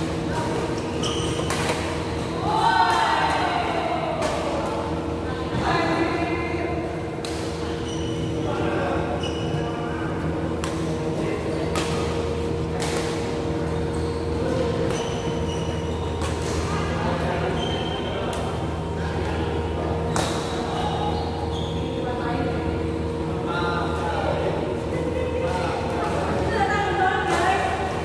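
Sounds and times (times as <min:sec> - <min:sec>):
shoes squeaking on court: 0:00.6 - 0:02.3, 0:07.8 - 0:08.5, 0:09.1 - 0:09.8, 0:13.6 - 0:16.7, 0:17.4 - 0:18.3, 0:20.8 - 0:22.1
rackets striking shuttlecock: 0:01.2 - 0:02.3, 0:11.6 - 0:13.5.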